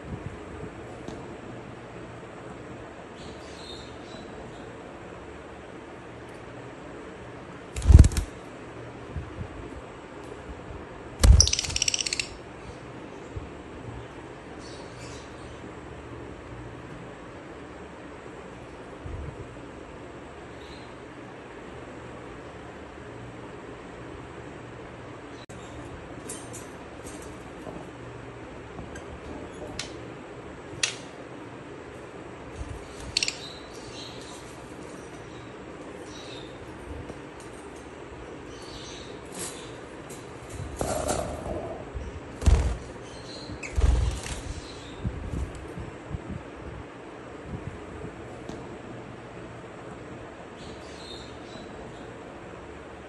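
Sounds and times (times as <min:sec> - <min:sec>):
bird wings flapping: 0:07.7 - 0:08.4, 0:11.2 - 0:11.9, 0:42.4 - 0:43.0, 0:43.6 - 0:44.7
lovebirds chirping: 0:11.2 - 0:12.8, 0:32.8 - 0:36.7, 0:42.5 - 0:45.1.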